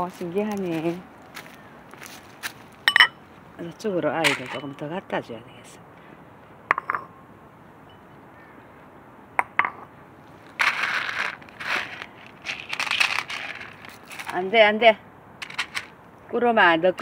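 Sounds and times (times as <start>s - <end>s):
footsteps crunching through leaves: 0.0s - 3.5s, 10.3s - 14.4s.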